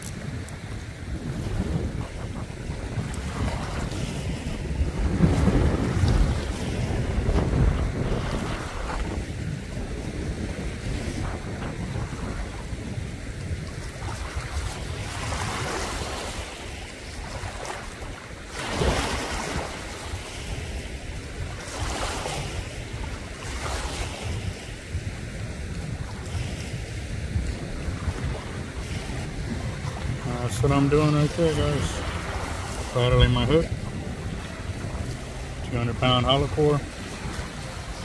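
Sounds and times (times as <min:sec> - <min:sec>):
wind rumbling on microphone: 0:00.0 - 0:38.0.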